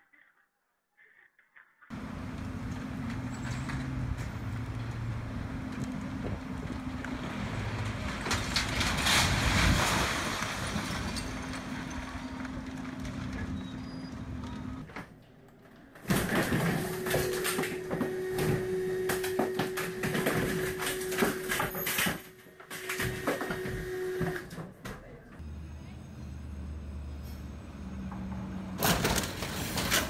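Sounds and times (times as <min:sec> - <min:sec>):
excavator engine droning: 0:01.9 - 0:09.0, 0:25.4 - 0:29.8
building crashing down: 0:02.1 - 0:13.8, 0:28.8 - 0:30.0.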